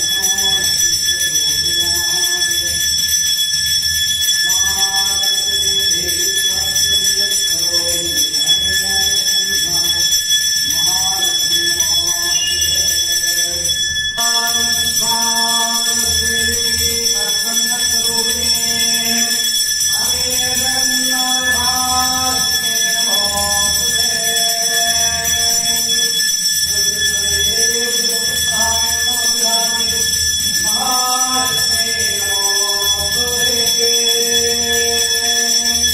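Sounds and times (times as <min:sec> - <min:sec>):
voices singing devotional song: 0:00.0 - 0:02.8, 0:04.5 - 0:35.9
temple bell ringing: 0:00.0 - 0:35.9.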